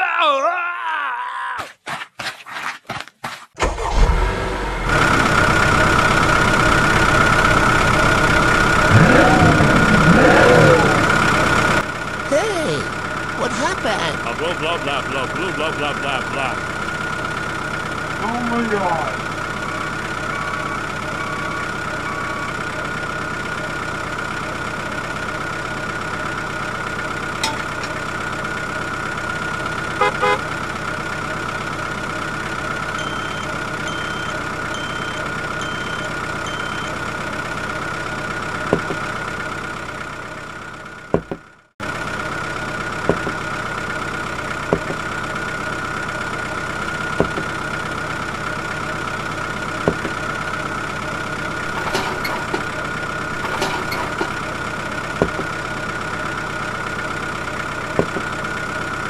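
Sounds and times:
engine idling with high whine: 0:03.6 - 0:59.0
short beeps: 0:33.0 - 0:37.0.

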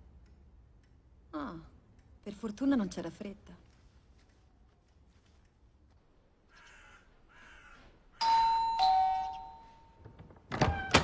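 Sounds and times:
faint bird caws: 0:06.4 - 0:08.2
two-tone doorbell chime: 0:08.2 - 0:10.0.

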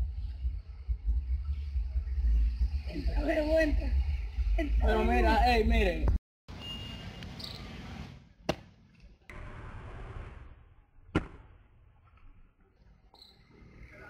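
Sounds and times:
sandal smacks: 0:11.1 - 0:11.5.

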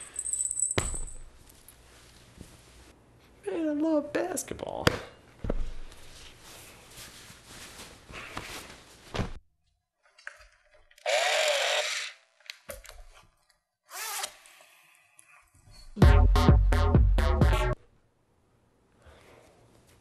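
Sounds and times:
clothes rustling: 0:01.4 - 0:03.0, 0:05.5 - 0:09.4.

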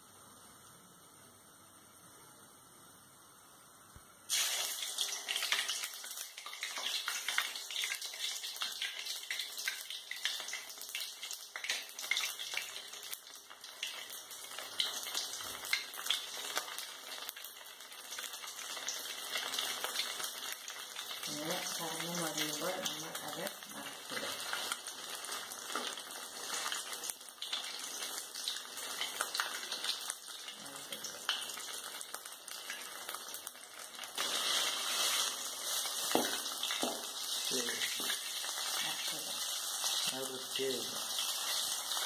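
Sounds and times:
bread deep-frying in oil: 0:00.0 - 0:42.0.

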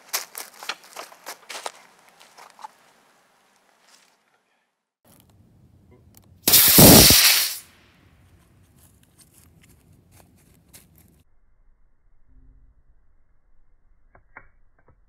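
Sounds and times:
model rocket motor hissing: 0:06.5 - 0:07.6.

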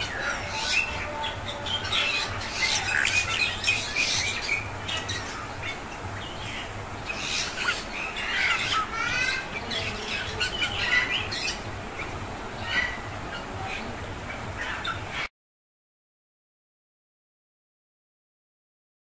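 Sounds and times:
mynas chirping and squawking: 0:00.0 - 0:15.3.

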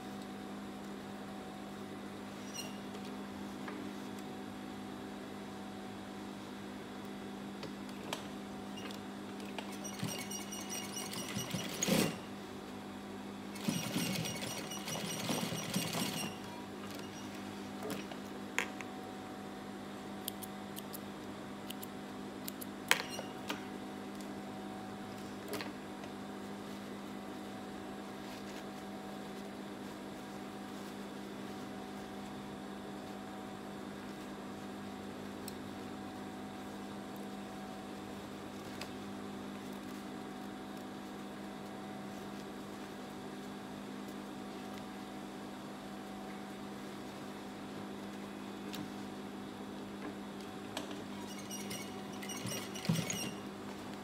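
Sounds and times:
sewing machine stitching: 0:09.7 - 0:12.2, 0:13.6 - 0:16.5, 0:51.2 - 0:53.4.

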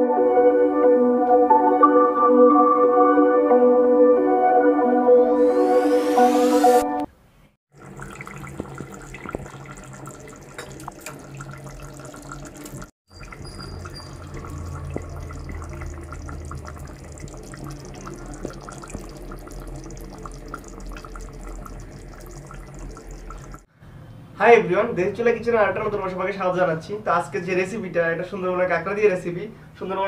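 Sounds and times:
water running and splashing: 0:07.7 - 0:23.7.

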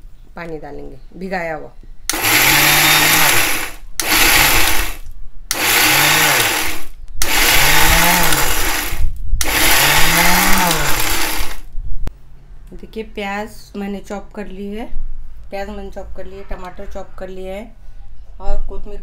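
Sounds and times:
mixer grinder motor: 0:02.1 - 0:11.7.

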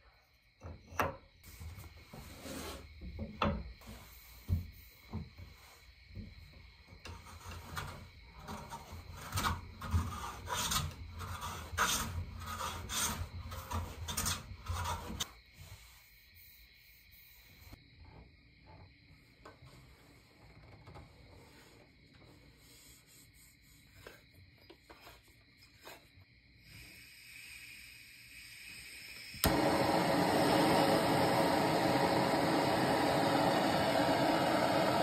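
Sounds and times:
hand tool rasping wood: 0:07.1 - 0:15.2.

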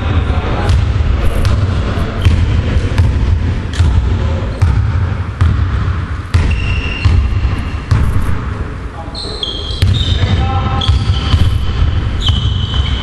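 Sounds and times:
basketball dribbling on wooden floor: 0:00.7 - 0:08.5, 0:09.8 - 0:13.0
shoe squeak: 0:06.4 - 0:08.4, 0:09.1 - 0:13.0.

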